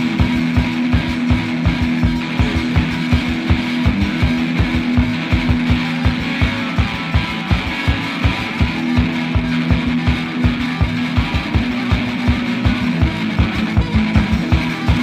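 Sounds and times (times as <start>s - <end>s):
instrumental rock music: 0.0s - 15.0s.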